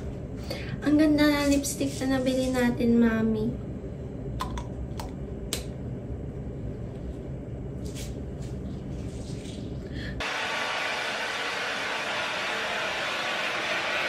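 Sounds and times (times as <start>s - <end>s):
hair dryer blowing: 10.2s - 14.0s.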